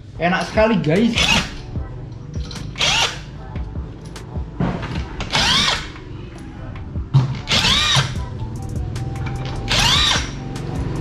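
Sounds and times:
impact wrench hammering: 0:01.1 - 0:01.6, 0:04.9 - 0:06.0, 0:07.1 - 0:08.2, 0:09.4 - 0:10.4.

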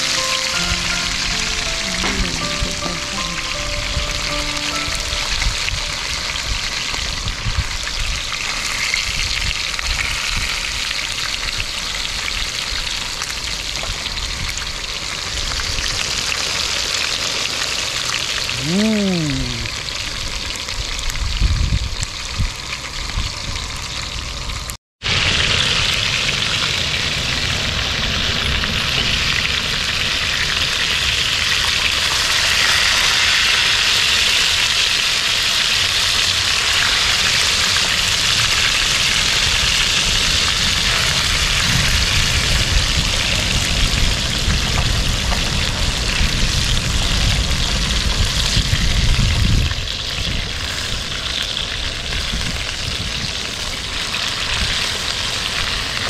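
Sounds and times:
fish sizzling in hot oil: 0:03.4 - 0:18.5, 0:19.9 - 0:56.0.

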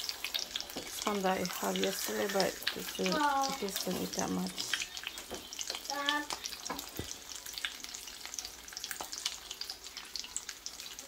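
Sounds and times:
meat sizzling in a frying pan: 0:00.0 - 0:11.0.

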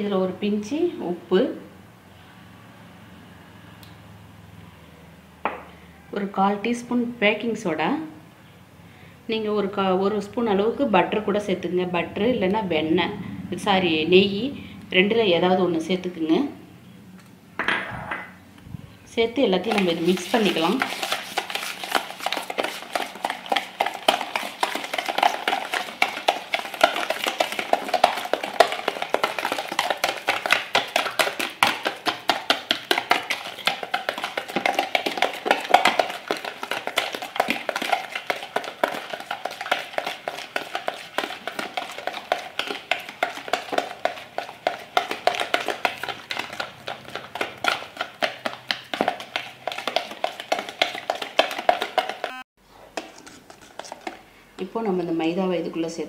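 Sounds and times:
whisk beating in plastic bowl: 0:19.4 - 0:54.2.

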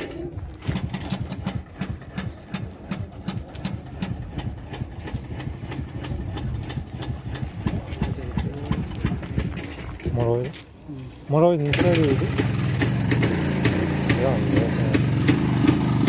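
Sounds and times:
motorcycle engine idling: 0:00.0 - 0:10.6, 0:11.4 - 0:16.0.

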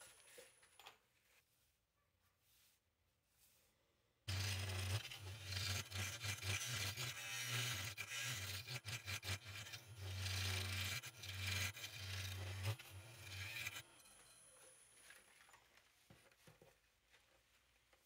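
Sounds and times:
lathe tool scraping wood: 0:04.3 - 0:14.3.

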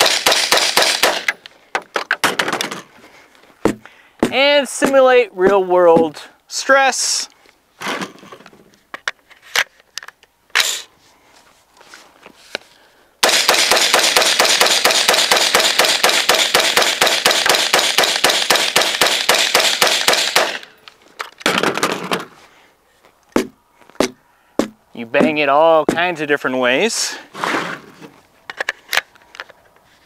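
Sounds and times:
rifle firing rapid shots: 0:00.0 - 0:01.4, 0:13.2 - 0:20.7.

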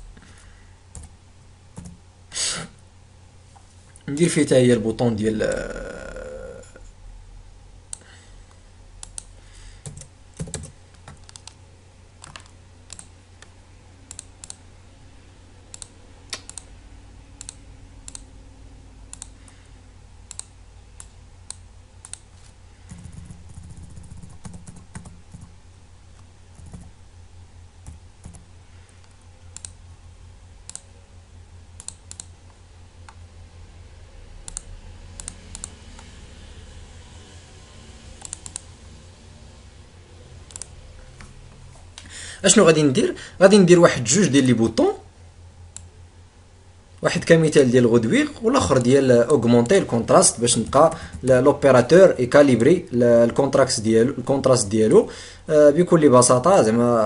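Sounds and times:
low steady hum: 0:00.0 - 0:57.0
keyboard and mouse clicks: 0:00.9 - 0:01.2, 0:01.8 - 0:02.0, 0:09.0 - 0:11.6, 0:12.2 - 0:13.5, 0:14.1 - 0:14.6, 0:15.7 - 0:16.7, 0:17.4 - 0:18.3, 0:19.1 - 0:19.4, 0:20.3 - 0:25.5, 0:27.8 - 0:29.8, 0:30.6 - 0:30.9, 0:31.8 - 0:33.2, 0:34.4 - 0:36.1, 0:38.2 - 0:38.7, 0:40.5 - 0:41.3.

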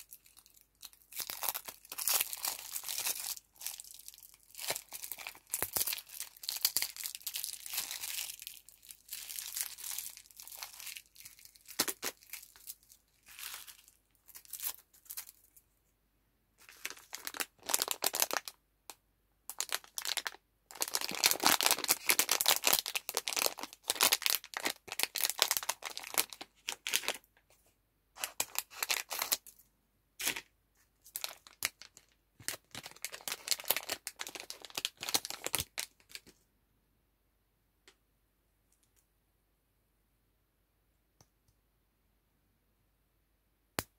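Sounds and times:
plastic wrappers crinkling: 0:00.0 - 0:15.6, 0:16.6 - 0:18.6, 0:19.5 - 0:27.3, 0:28.2 - 0:29.6, 0:31.1 - 0:36.3.

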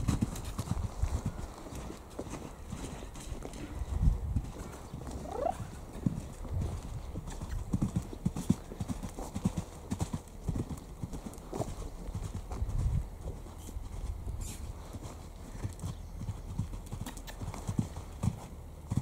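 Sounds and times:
hoofbeats on soft ground: 0:00.0 - 0:19.0
horse calling: 0:05.0 - 0:05.9.

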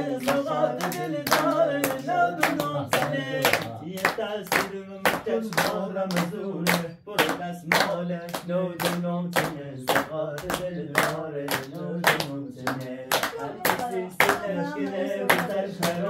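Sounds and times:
person singing: 0:00.0 - 0:08.0, 0:08.8 - 0:16.0
hands clapping in a steady beat: 0:00.0 - 0:16.0.

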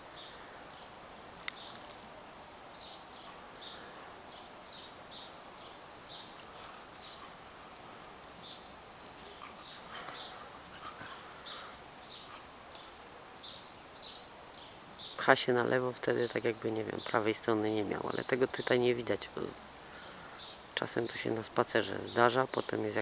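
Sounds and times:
faint outdoor background noise: 0:00.0 - 0:23.0
small bird chirping: 0:00.1 - 0:02.2, 0:02.8 - 0:15.2.

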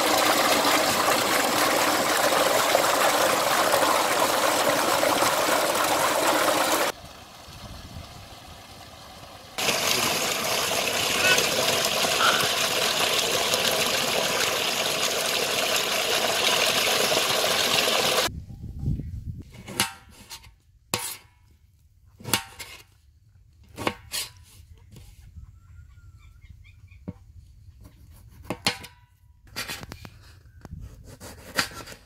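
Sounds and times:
water gushing from a pipe: 0:00.0 - 0:18.3.

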